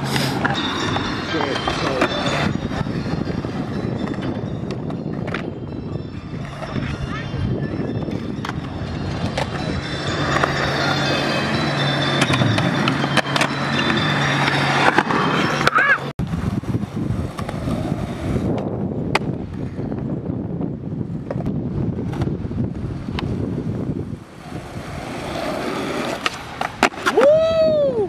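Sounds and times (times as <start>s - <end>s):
skateboard clacks: 0.0s - 5.5s, 8.1s - 16.1s, 17.2s - 19.7s, 24.4s - 27.4s
skateboard wheels rolling: 0.0s - 28.0s.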